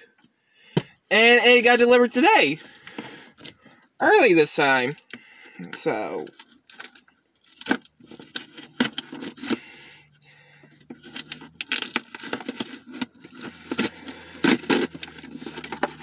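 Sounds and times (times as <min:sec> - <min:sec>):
packaging scraping and tearing: 0:06.2 - 0:09.8, 0:10.7 - 0:16.0.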